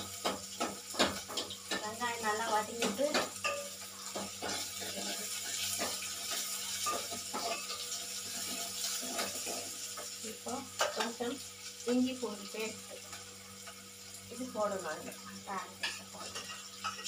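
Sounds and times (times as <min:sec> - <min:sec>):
onions sizzling in oil: 0:00.0 - 0:17.0
spoon scraping and knocking pot: 0:02.8 - 0:07.8.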